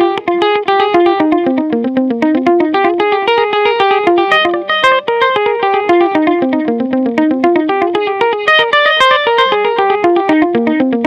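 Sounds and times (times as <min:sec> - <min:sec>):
electric guitar picked notes with echo: 0:00.0 - 0:11.0.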